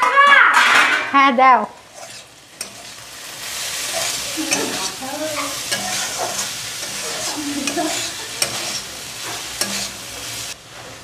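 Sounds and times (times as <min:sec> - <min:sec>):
filling sizzling in a pan: 0:01.4 - 0:11.0
metal spatula scraping pan: 0:01.8 - 0:10.6.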